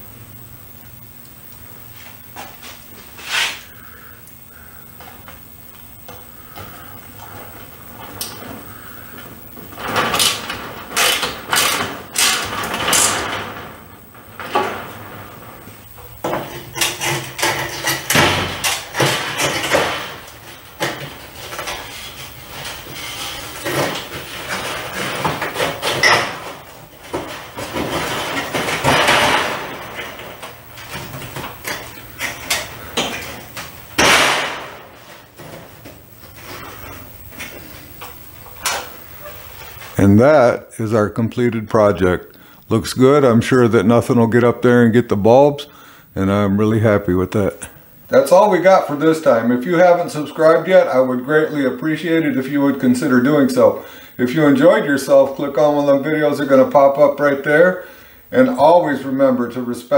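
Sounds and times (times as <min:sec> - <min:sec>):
metal scraping and rattling: 0:09.5 - 0:37.0.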